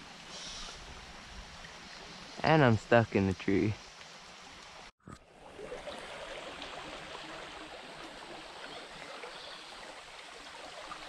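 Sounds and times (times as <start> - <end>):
creek water running over rocks: 0.0 - 11.0.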